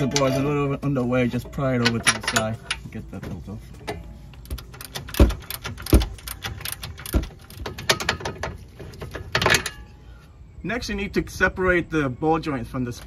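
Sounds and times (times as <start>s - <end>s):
hand ratchet clicking: 4.4s - 8.4s.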